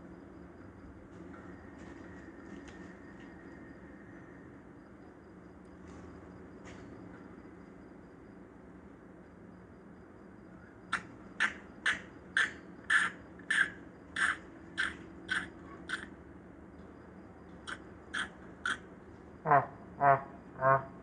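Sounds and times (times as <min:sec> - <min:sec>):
bird's harsh calls: 0:11.4 - 0:16.1, 0:17.7 - 0:18.8.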